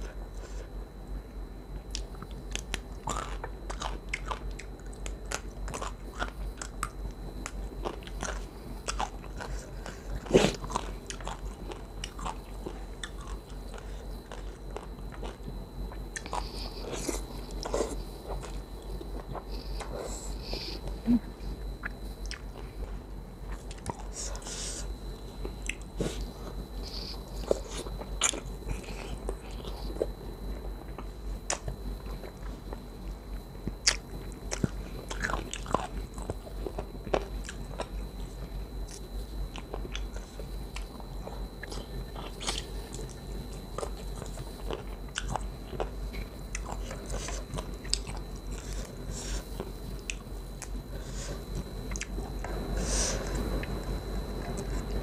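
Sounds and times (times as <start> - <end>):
faint high whine: 0.0 - 55.0
wet chewing mouth sounds: 38.9 - 55.0.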